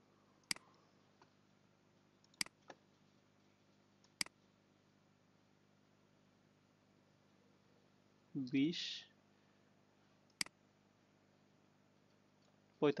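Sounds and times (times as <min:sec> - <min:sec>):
computer mouse clicks: 0:02.2 - 0:02.8, 0:04.0 - 0:04.4, 0:10.2 - 0:10.6.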